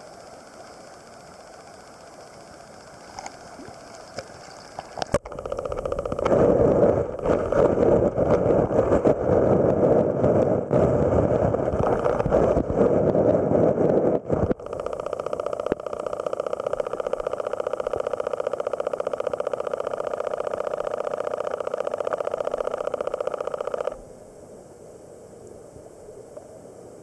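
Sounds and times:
stream water heard underwater: 0.0s - 27.0s
faint hiss: 24.0s - 27.0s.

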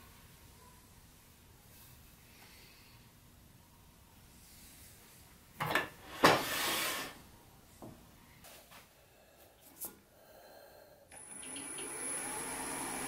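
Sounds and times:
short scrape: 6.0s - 7.2s.

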